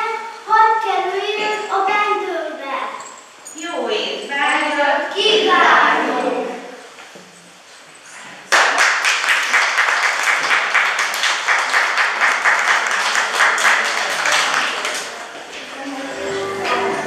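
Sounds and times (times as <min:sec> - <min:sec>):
children applauding: 0:08.5 - 0:15.3.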